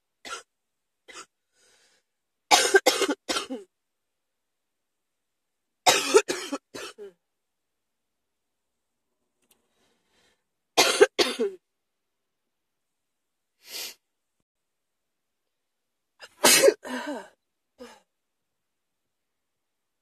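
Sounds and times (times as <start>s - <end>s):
person coughing: 2.5s - 3.7s, 5.9s - 7.2s, 10.8s - 11.6s, 16.2s - 18.0s.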